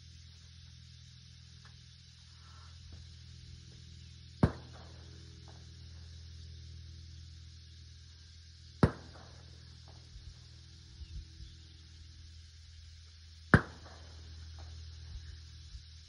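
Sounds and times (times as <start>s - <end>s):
rifle shots: 4.4s - 5.1s, 8.8s - 9.6s, 13.5s - 14.2s.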